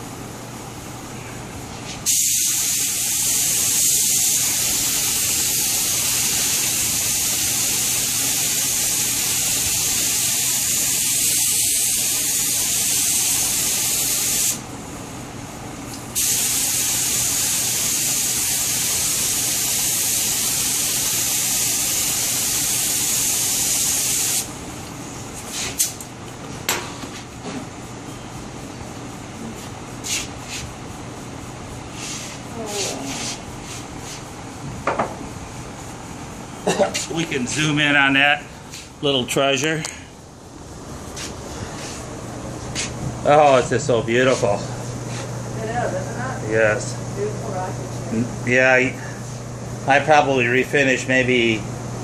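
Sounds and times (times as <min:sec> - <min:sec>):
spray gun hissing: 0:02.0 - 0:14.6, 0:16.2 - 0:24.5.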